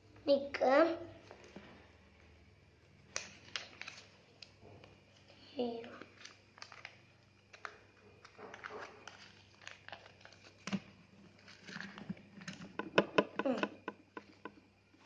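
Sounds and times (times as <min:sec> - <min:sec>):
paper rustling and crinkling: 0:03.2 - 0:04.2, 0:06.0 - 0:12.6
sharp knocks: 0:12.8 - 0:14.3.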